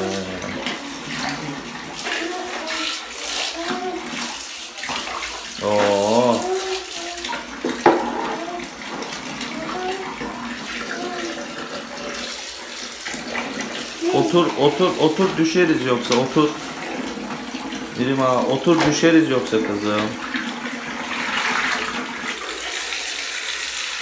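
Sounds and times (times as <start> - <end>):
tap water splashing into bucket: 0.0 - 24.0
person saying drawn-out oo: 5.6 - 6.8.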